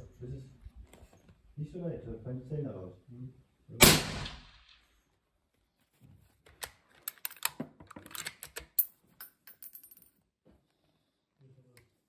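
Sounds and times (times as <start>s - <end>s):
rifle bolt clicks and clacks: 6.5s - 10.0s.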